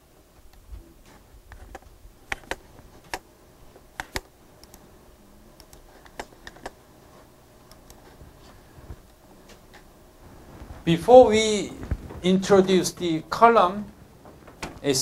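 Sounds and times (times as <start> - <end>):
faint room noise: 0.0 - 15.0
computer mouse clicks: 1.5 - 3.2, 4.0 - 4.8, 5.6 - 6.8, 7.7 - 8.2.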